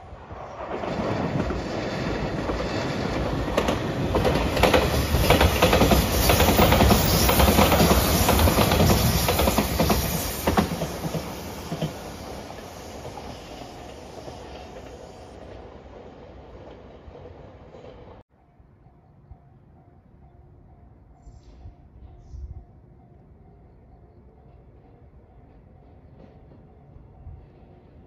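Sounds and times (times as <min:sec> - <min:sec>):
electric train passing at speed: 0:00.0 - 0:28.0
wheels clicking over rail joints: 0:00.6 - 0:18.2.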